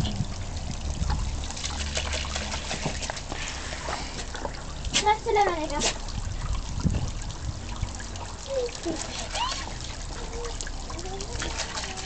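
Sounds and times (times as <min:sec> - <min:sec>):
dog splashing in water: 0:00.0 - 0:12.0
water trickling: 0:00.0 - 0:12.0.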